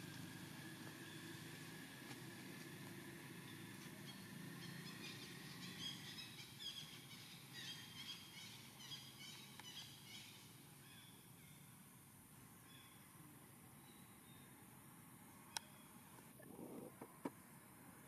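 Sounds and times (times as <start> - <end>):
faint bird chirping: 3.4 - 11.8, 12.4 - 16.9.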